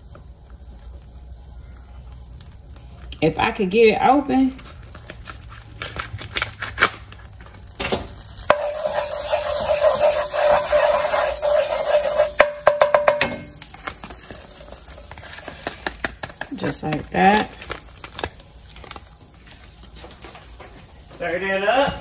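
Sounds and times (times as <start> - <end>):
butter sizzling: 0.0 - 21.8
wooden spoon scraping a pan: 8.4 - 17.7.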